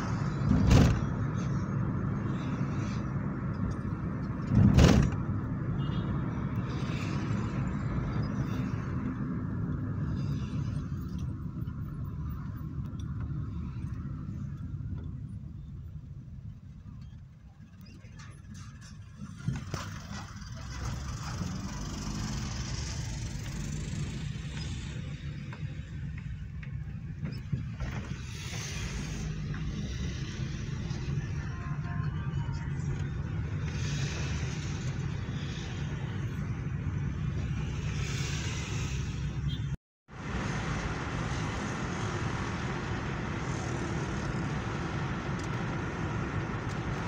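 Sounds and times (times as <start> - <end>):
vehicle road and engine noise: 0.0 - 47.0
passing vehicle hiss: 19.9 - 25.2, 28.1 - 31.6, 33.4 - 36.6, 37.5 - 39.5, 40.2 - 47.0.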